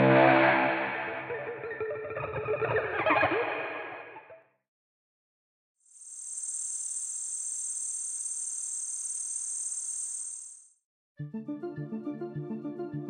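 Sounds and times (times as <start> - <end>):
crickets chirping: 5.9 - 10.8.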